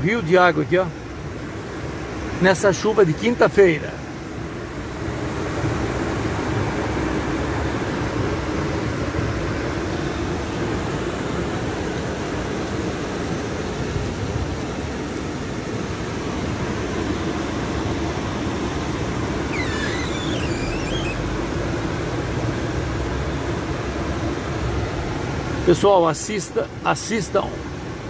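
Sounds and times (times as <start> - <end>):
rain: 0.0 - 28.0
tyres on wet road: 0.0 - 28.0
low engine hum: 4.0 - 25.7.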